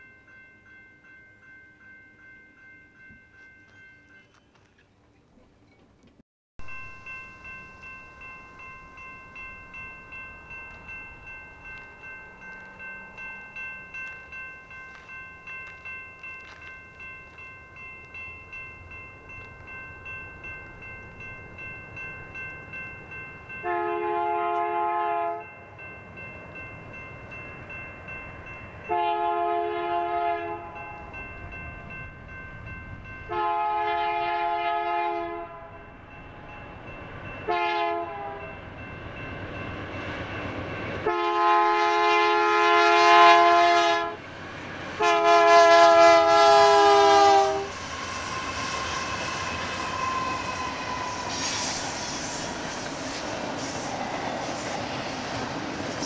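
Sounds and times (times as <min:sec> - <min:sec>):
crossing bell ringing: 0:00.0 - 0:04.8, 0:06.6 - 0:56.0
train rumble: 0:03.0 - 0:56.0
locomotive air horn blasts: 0:23.6 - 0:25.4, 0:28.9 - 0:30.8, 0:33.3 - 0:35.8, 0:37.5 - 0:38.4, 0:41.0 - 0:44.2, 0:45.0 - 0:47.8.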